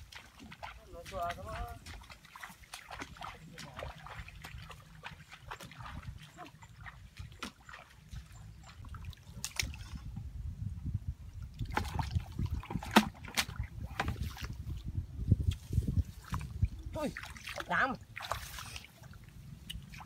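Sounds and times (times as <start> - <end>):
hands splashing in muddy water: 0.0 - 8.0, 11.6 - 14.8, 15.4 - 20.0
footsteps splashing through water: 0.0 - 9.9, 11.6 - 14.8, 15.5 - 20.0.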